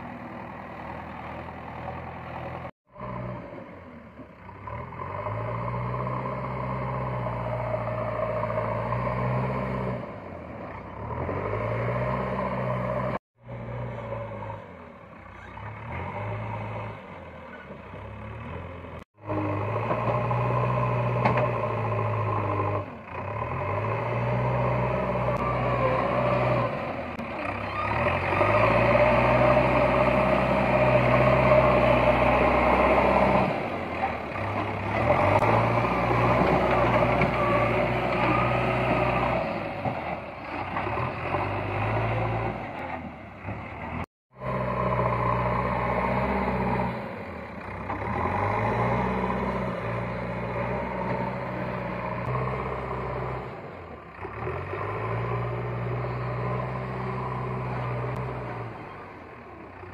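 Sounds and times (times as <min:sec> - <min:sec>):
backhoe diesel engine revving: 0:00.0 - 0:59.9.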